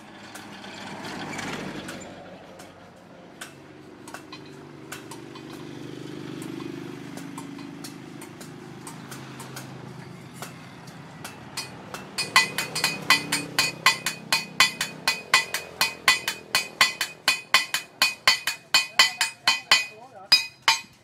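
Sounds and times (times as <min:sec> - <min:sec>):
passing vehicle hum: 0:00.0 - 0:19.4
hammer striking steel on anvil: 0:06.4 - 0:09.8, 0:11.2 - 0:21.0.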